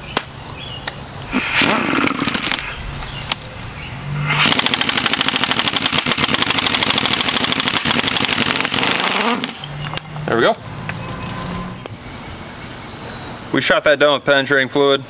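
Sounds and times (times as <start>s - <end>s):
impact wrench rattling: 1.6s - 2.8s, 4.3s - 9.6s.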